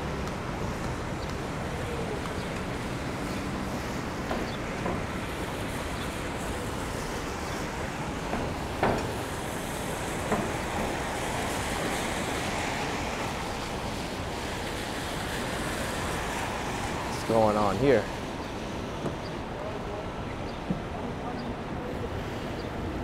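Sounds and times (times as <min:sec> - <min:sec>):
traffic on wet pavement: 0:00.0 - 0:23.0
short sharp knocks: 0:08.3 - 0:09.3.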